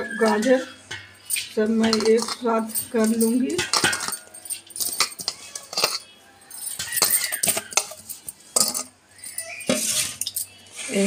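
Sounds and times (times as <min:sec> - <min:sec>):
steel bowls clinking: 0:00.0 - 0:11.0
carrot scraped between bowls: 0:09.6 - 0:11.0.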